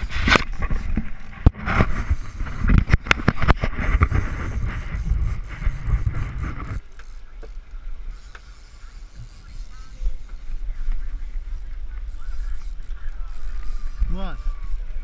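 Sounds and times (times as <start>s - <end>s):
wind rumble on microphone: 0.0s - 8.3s, 9.2s - 15.0s
camera handling knocks and rubbing: 0.1s - 6.8s.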